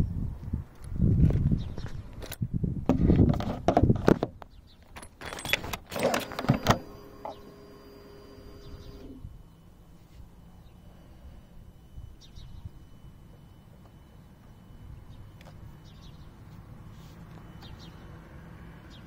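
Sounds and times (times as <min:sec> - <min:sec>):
faint steady hum: 0:05.3 - 0:19.0.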